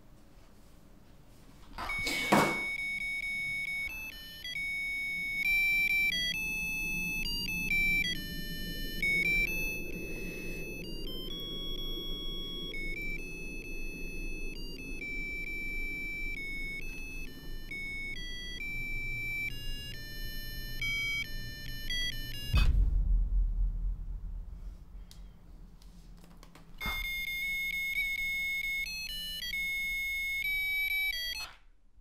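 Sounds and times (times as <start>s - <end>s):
beeping electronic melody: 1.8s - 22.8s, 26.8s - 31.6s
low drone: 4.8s - 26.2s
loud low boom: 22.5s - 25.8s.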